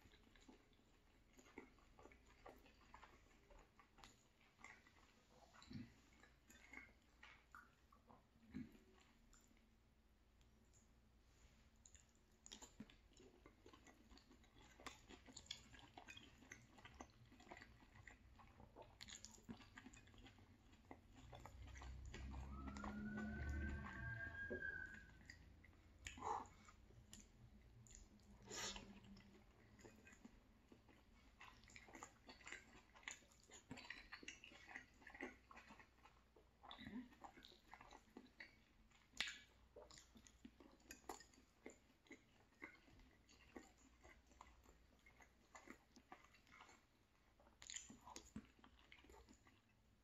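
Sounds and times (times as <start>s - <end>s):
person chewing: 0.0s - 50.0s
wet mouth smacks: 39.1s - 39.5s
small mouth clicks: 39.1s - 40.0s.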